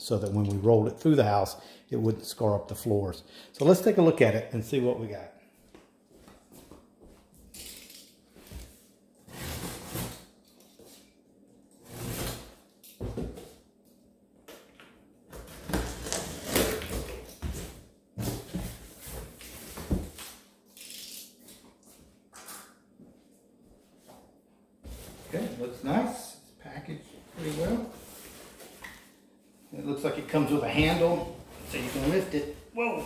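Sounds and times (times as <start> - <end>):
packing tape ripping off box: 15.4 - 17.6, 20.2 - 21.6.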